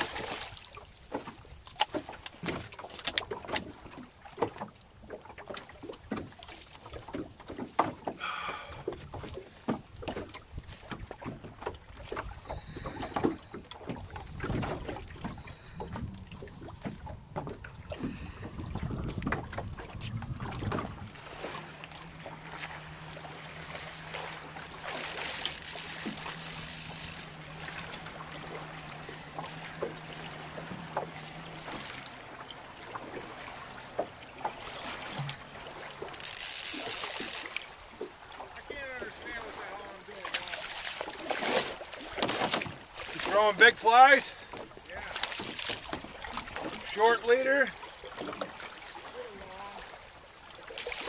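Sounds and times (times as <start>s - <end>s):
boat handling knocks: 1.0s - 39.2s, 40.2s - 43.6s
wind rumble: 14.0s - 22.0s
fly reel drag buzzing: 24.1s - 32.1s, 36.0s - 37.7s.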